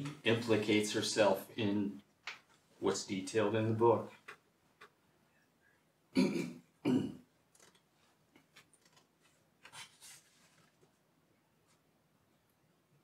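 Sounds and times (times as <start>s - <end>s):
person clearing throat: 6.1s - 7.3s
paper rustling: 7.6s - 11.8s.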